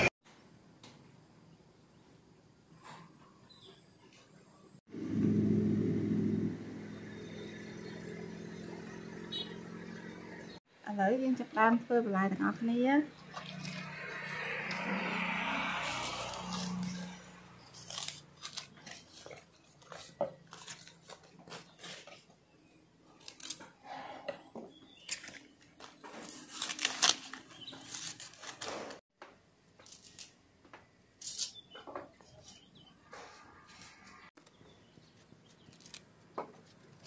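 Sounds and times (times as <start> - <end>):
vegetables rustling: 15.5 - 22.3, 25.0 - 29.0.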